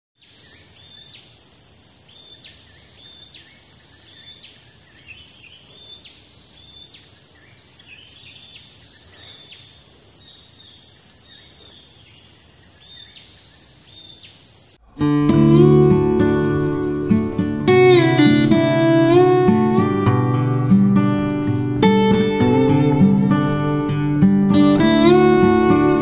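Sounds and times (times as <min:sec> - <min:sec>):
insect chorus: 0:00.2 - 0:14.8.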